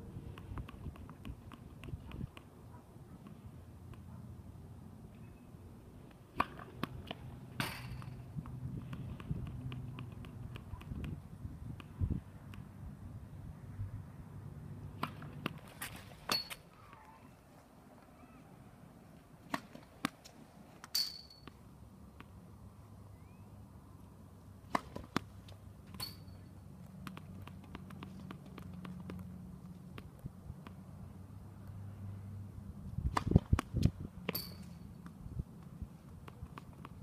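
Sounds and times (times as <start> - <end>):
tennis balls struck and bouncing: 0.2 - 2.6, 6.0 - 12.7, 14.9 - 16.7, 19.4 - 22.4, 24.6 - 30.9, 33.0 - 37.0.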